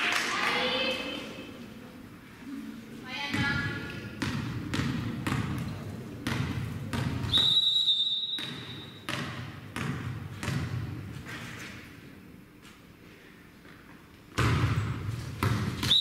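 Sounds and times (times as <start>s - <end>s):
volleyball bouncing on gym floor: 3.2s - 11.1s, 14.3s - 16.0s
referee's whistle: 7.3s - 9.0s.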